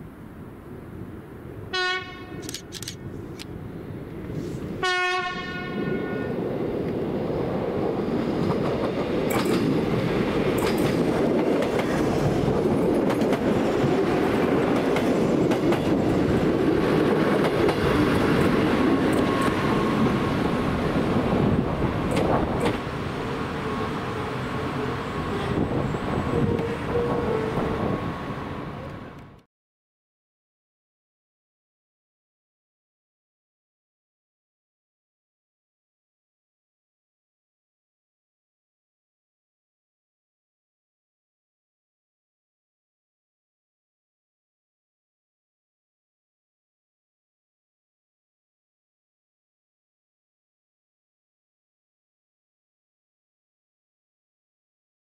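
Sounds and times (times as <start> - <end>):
railcar engines rumbling: 0.0 - 29.4
train horn: 1.7 - 2.4, 4.8 - 6.4, 23.7 - 28.0.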